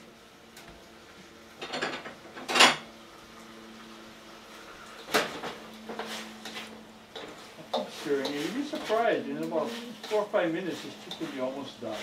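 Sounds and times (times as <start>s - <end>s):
dishes and utensils clattering: 1.6s - 2.9s.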